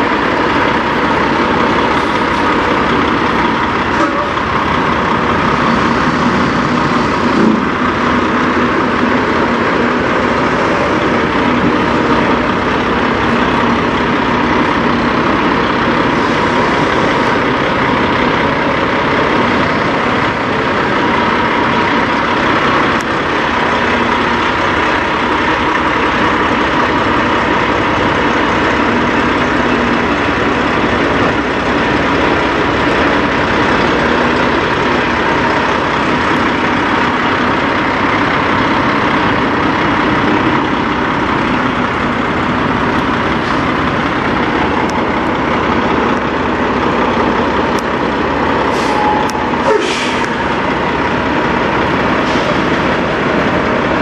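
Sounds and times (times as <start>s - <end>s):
diesel truck engine idling: 0.0s - 54.0s.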